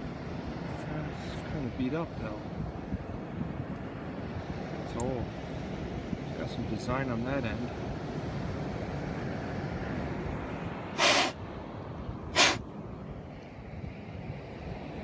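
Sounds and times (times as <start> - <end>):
beach surf: 0.0 - 15.0
wind noise: 0.0 - 15.0
loud hissing rushes: 10.9 - 11.4, 12.3 - 12.6.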